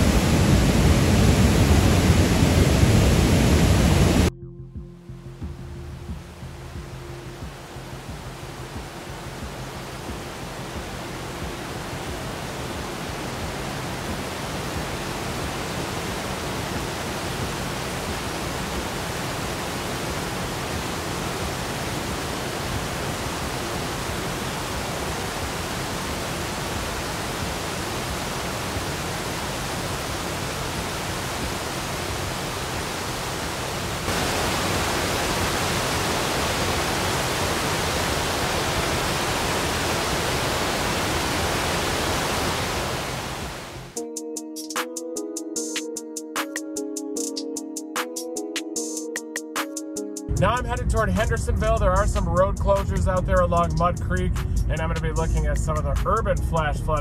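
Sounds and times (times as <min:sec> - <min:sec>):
fast-moving water rushing: 0:00.0 - 0:04.3, 0:07.4 - 0:44.0.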